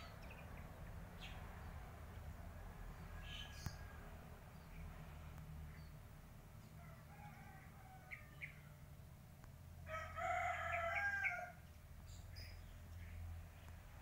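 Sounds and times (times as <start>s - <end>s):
rooster crowing: 6.8s - 8.5s, 9.9s - 11.6s.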